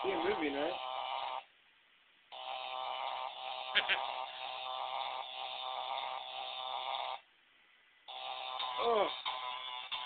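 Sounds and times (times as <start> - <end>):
electronic buzzer tone: 2.3 - 7.2, 8.1 - 10.0.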